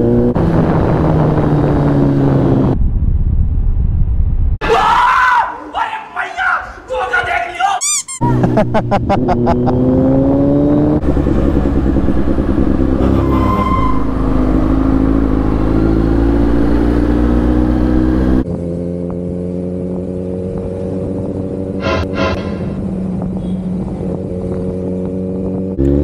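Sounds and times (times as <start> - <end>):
brief higher tone: 21.8 - 23.0.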